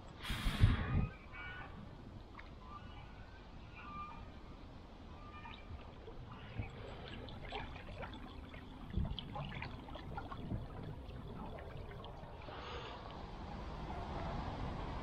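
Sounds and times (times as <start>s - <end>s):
small water splashes: 2.2s - 3.2s, 5.1s - 15.0s
water trickling and dripping: 5.2s - 15.0s.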